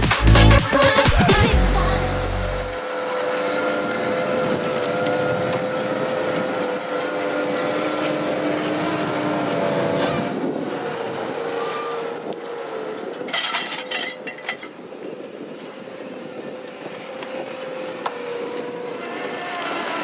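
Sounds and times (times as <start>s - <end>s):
harvester engine and machinery: 0.0s - 14.8s
constant machine whine: 0.0s - 20.0s.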